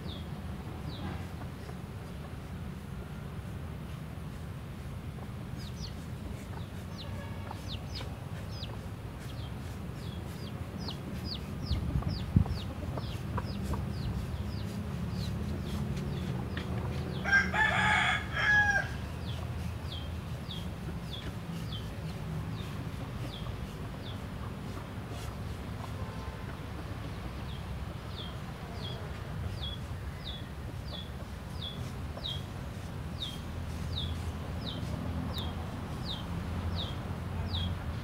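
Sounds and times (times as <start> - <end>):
rooster crowing: 17.2 - 19.1.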